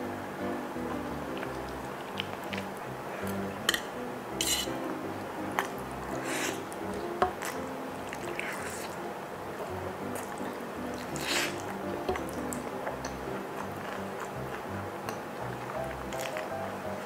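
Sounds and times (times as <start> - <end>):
background music: 0.0 - 17.0
slurping and chewing noodles: 5.6 - 9.0, 10.1 - 16.5.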